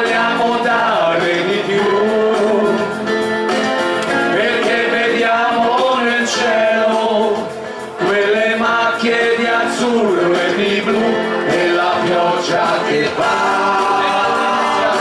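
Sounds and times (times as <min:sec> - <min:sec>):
group singing through microphones: 0:00.0 - 0:15.0
keyboard accompaniment: 0:00.0 - 0:15.0.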